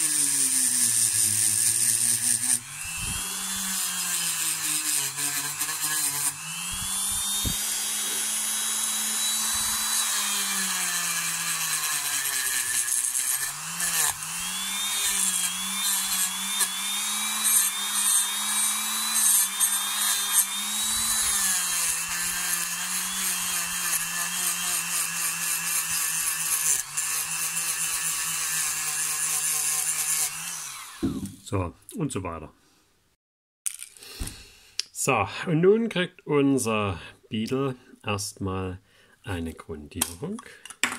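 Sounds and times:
rotary tool polishing metal: 0.0s - 31.3s.

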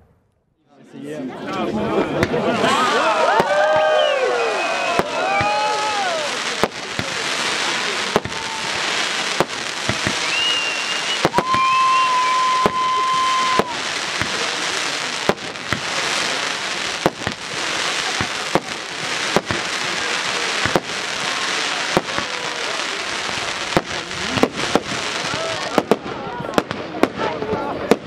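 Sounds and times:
fireworks bangs: 2.0s - 28.0s
crackling hiss of fireworks: 2.2s - 28.0s
firework whistle: 2.7s - 16.4s.

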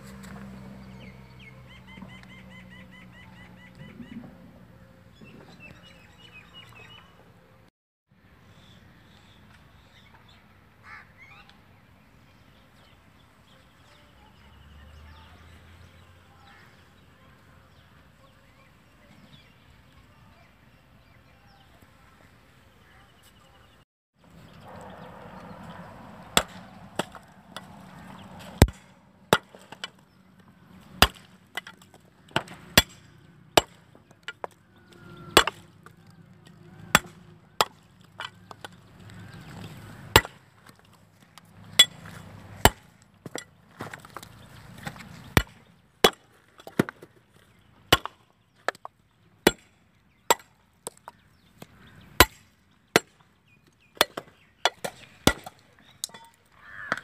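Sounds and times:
knife cracking coconuts: 31.0s - 33.0s, 37.0s - 38.8s.

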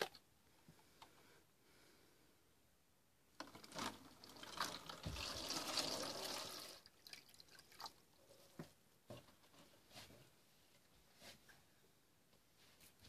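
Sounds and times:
water dripping: 3.4s - 8.2s
water pouring into plastic jug: 3.4s - 8.4s.

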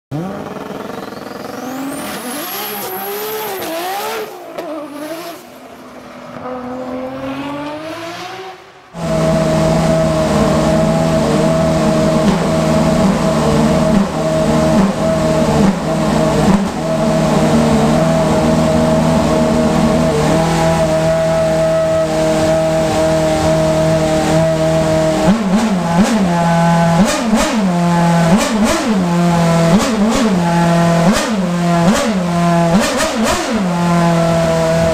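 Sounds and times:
engine revving: 0.1s - 5.6s, 6.3s - 34.9s
racing car engine idling: 9.0s - 33.0s.

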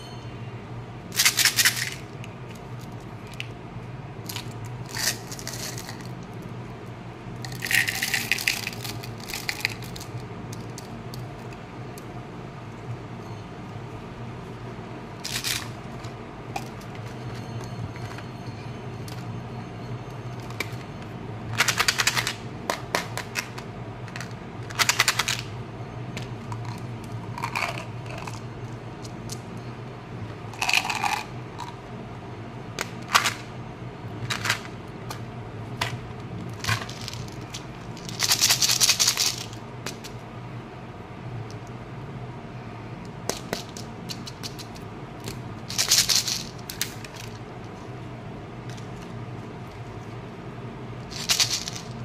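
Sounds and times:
steady low hum: 0.0s - 52.0s
plastic containers rattling: 51.1s - 52.0s.

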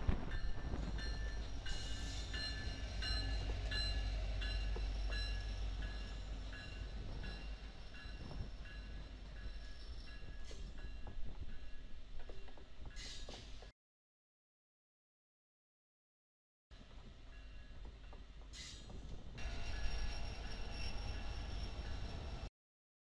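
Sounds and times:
train cars rumbling on rails: 0.0s - 11.5s, 17.8s - 22.5s.

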